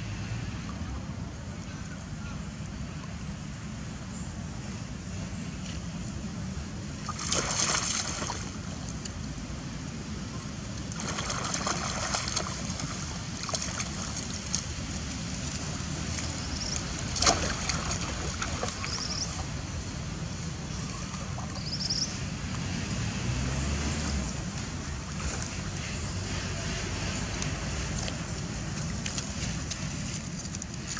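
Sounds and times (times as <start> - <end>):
water splashing and sloshing: 5.5 - 30.9
steady low rumble: 24.2 - 30.9.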